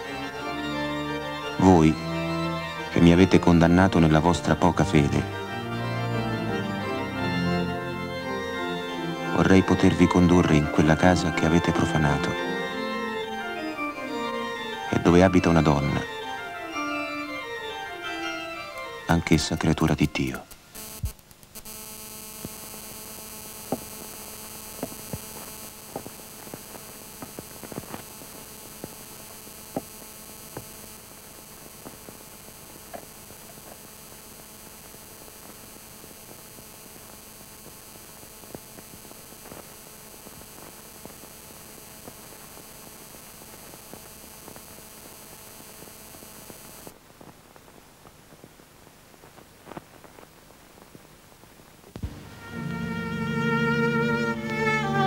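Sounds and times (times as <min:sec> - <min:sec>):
electrical hum: 0:00.0 - 0:55.0
film soundtrack clicks and crackles: 0:20.5 - 0:21.7.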